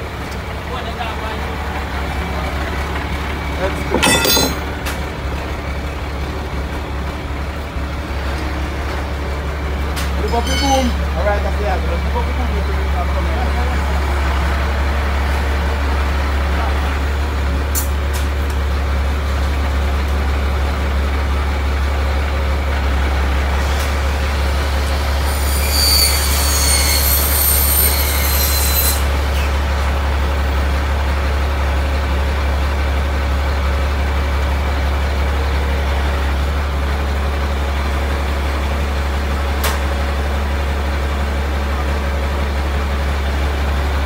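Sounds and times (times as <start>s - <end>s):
truck engine running steadily: 0.0s - 25.2s, 29.0s - 44.0s
high-pitched squeal: 10.2s - 11.0s, 24.3s - 29.5s.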